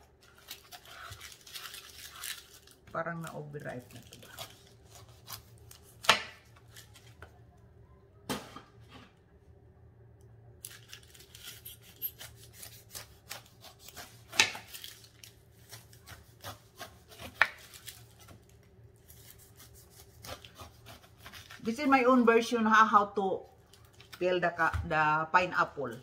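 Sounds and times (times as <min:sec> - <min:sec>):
knife rasping through pineapple skin: 0:00.5 - 0:02.4, 0:04.2 - 0:06.2, 0:11.2 - 0:15.0, 0:15.6 - 0:18.4, 0:19.0 - 0:21.7.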